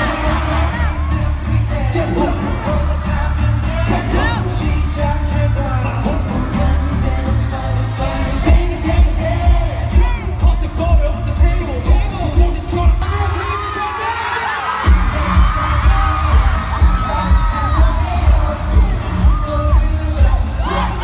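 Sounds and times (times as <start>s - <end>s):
boy band singing: 0.0s - 21.0s
pop backing track with heavy bass: 0.0s - 21.0s
pounding bass drum: 8.2s - 13.3s, 14.9s - 21.0s.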